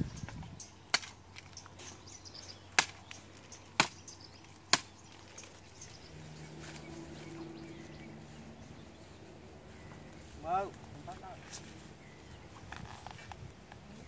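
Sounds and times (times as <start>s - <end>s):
machete chopping tree trunk: 0.9s - 1.5s, 2.7s - 5.2s.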